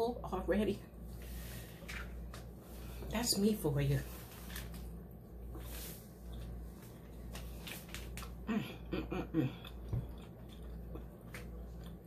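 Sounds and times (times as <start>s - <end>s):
low steady hum: 0.0s - 12.0s
woman murmuring: 8.5s - 9.6s
chewing smacks: 9.6s - 12.0s.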